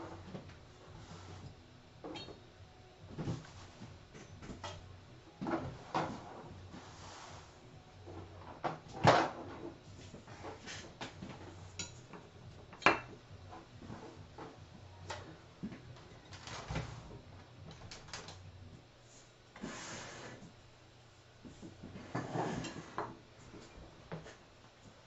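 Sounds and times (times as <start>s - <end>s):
sliding rustle: 0.8s - 1.6s, 5.7s - 8.4s.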